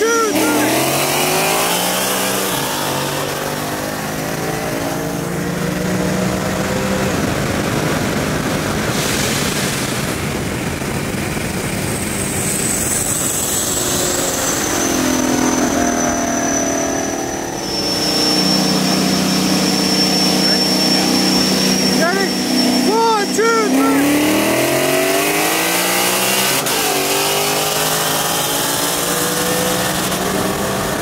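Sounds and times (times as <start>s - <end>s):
car engine drone: 0.0s - 31.0s
wind and road rush: 0.0s - 31.0s
thin high whistle: 13.9s - 23.0s.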